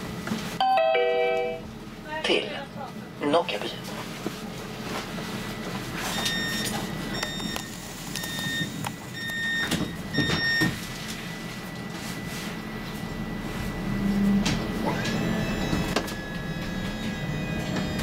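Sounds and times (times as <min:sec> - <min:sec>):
tram low hum: 0:00.0 - 0:18.0
tram door warning beeps: 0:05.4 - 0:18.0.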